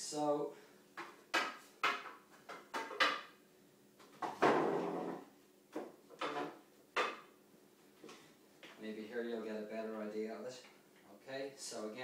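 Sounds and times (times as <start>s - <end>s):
chair legs knocking on tile: 1.0s - 3.3s, 4.1s - 7.3s
chair scraping on tile: 4.3s - 5.3s.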